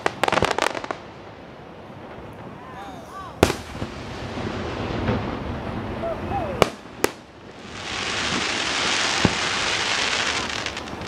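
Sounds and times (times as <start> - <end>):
firework bangs: 0.0 - 11.0
firework shell hissing: 6.6 - 11.0.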